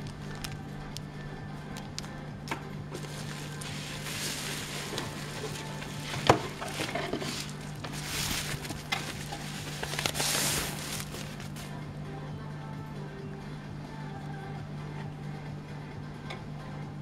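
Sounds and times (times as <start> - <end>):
bubble wrap crinkling: 0.0 - 11.8.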